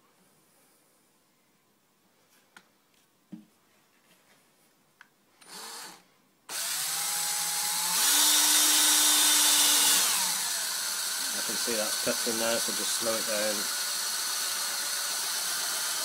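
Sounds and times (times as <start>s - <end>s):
cordless drill cutting into steel: 5.4s - 16.0s.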